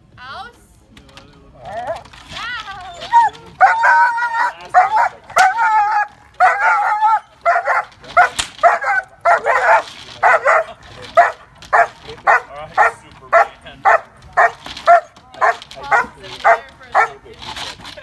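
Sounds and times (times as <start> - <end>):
dog barking: 3.6 - 17.2
sharp crack: 5.2 - 12.4.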